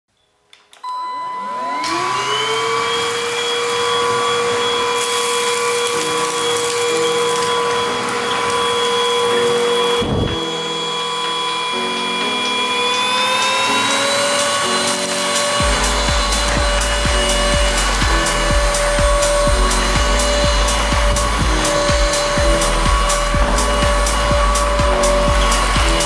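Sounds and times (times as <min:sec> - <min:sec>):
stick vacuum motor whine: 0:00.8 - 0:26.0.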